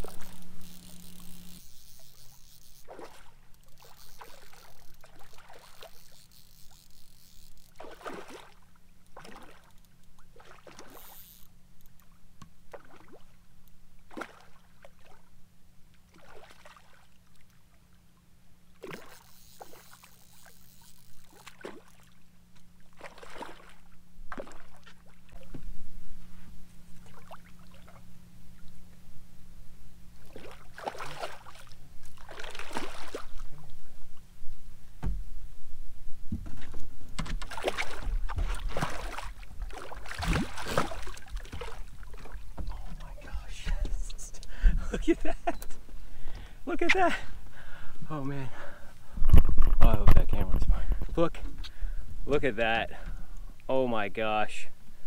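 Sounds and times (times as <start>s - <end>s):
fish splashing water: 0.0s - 8.6s, 9.2s - 11.2s, 18.8s - 22.2s, 22.9s - 25.4s, 30.2s - 33.4s, 37.4s - 43.0s.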